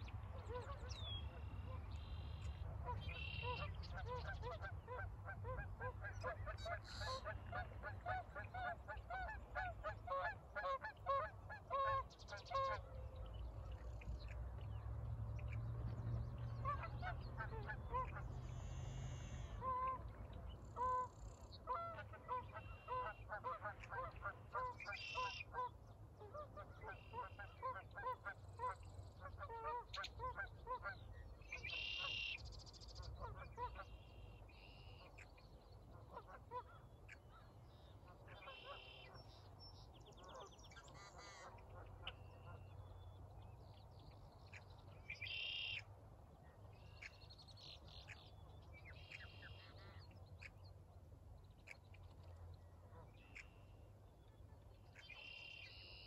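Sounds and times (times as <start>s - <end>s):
flock of birds calling: 2.9s - 14.4s.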